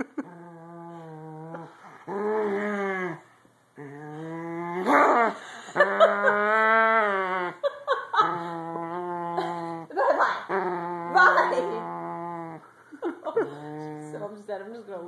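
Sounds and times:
dog grumbling growling moans: 0.2s - 14.4s.

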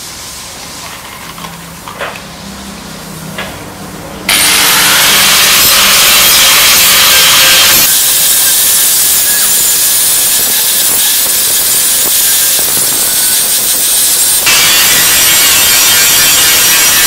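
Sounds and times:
angle grinder grinding metal: 4.3s - 17.0s.

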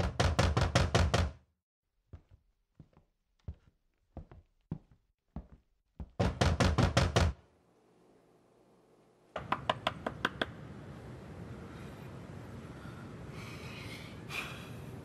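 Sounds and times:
knocking on a door: 0.0s - 1.4s, 6.0s - 7.4s.

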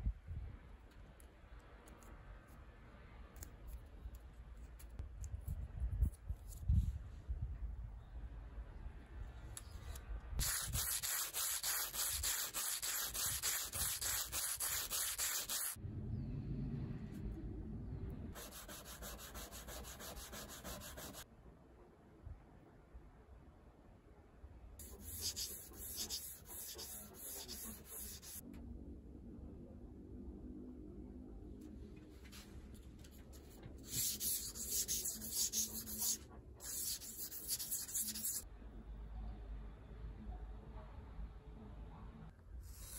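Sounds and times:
metal sanded on wet sandpaper: 10.4s - 15.8s, 18.4s - 21.2s, 24.8s - 28.4s, 33.8s - 38.4s.

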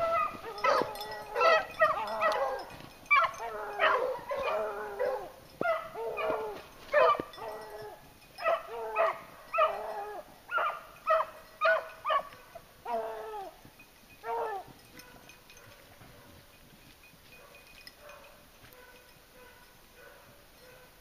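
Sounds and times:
beagles baying: 0.0s - 13.6s, 14.2s - 16.4s.

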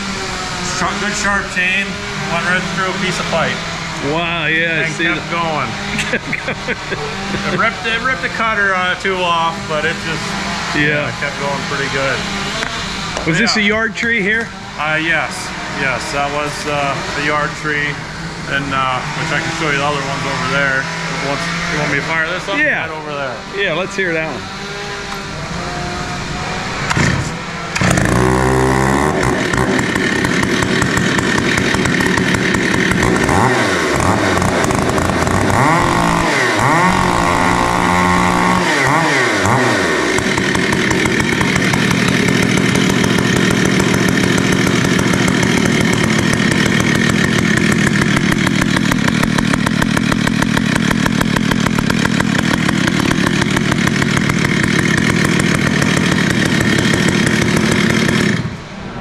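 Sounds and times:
chainsaw pull-started and revving: 0.0s - 58.7s.

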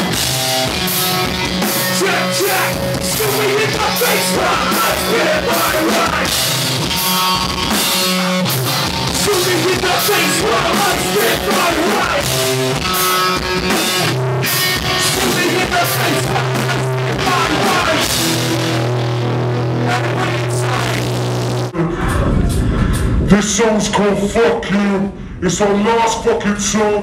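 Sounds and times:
drum kit: 0.0s - 24.0s
bass guitar: 0.0s - 24.4s
distorted guitar: 0.0s - 24.4s.

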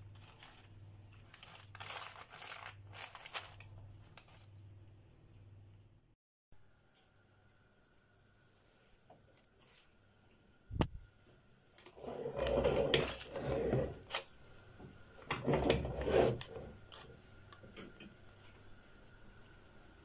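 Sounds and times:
metal pan scraping and rustling: 11.9s - 14.2s, 15.2s - 17.0s.

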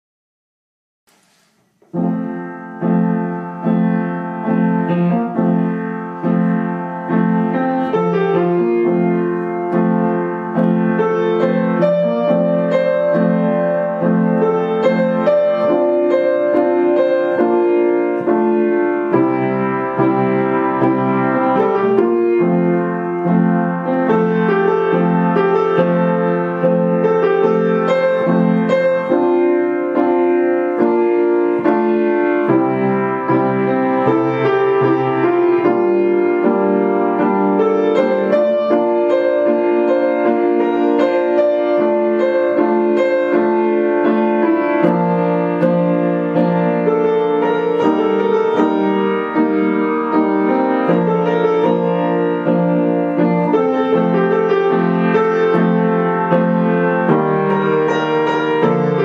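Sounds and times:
piano background music: 1.1s - 59.0s.

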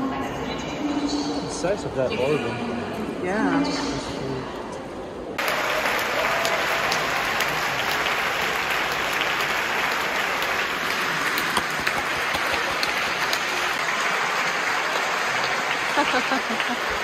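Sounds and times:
crowd applauding: 5.4s - 17.0s.

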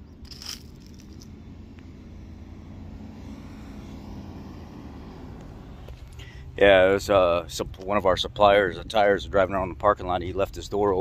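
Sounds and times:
vehicle engine driving past: 0.0s - 7.5s.

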